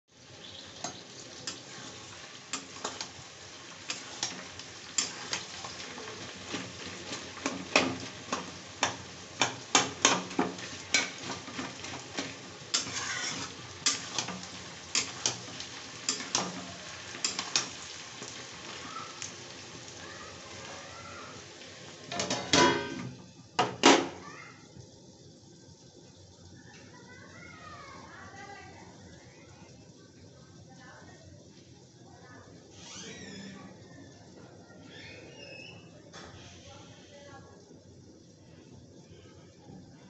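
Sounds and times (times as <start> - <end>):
onions sizzling in hot oil: 0.1 - 40.0
spatula scraping a pan: 0.8 - 18.3.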